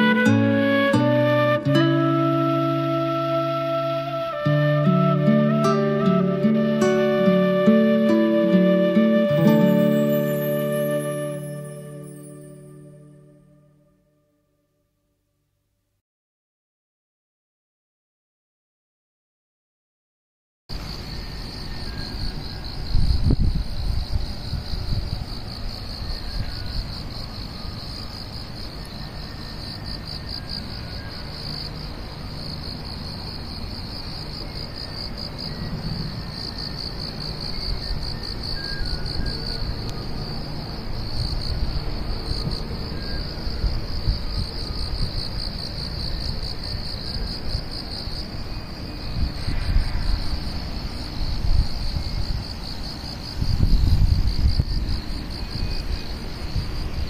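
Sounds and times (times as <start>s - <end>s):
insects trilling: 7.7s - 13.3s, 20.7s - 57.0s.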